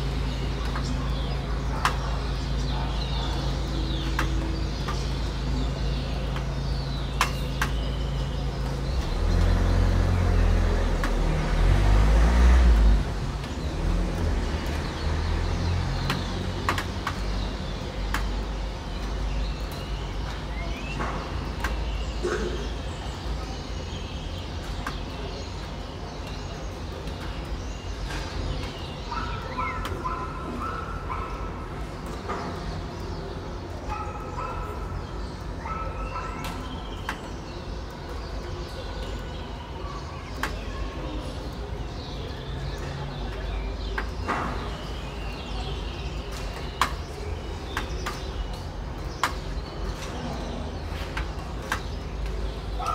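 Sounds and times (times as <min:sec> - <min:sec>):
low traffic hum: 0:00.0 - 0:52.9
vehicle rumbling past: 0:08.9 - 0:16.7
starlings chirping and whistling: 0:27.4 - 0:33.3.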